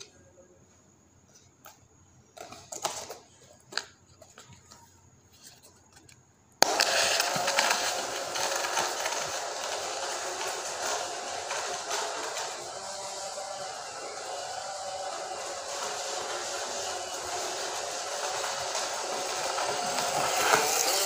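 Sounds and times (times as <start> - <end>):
small motors whirring: 6.6 - 21.0.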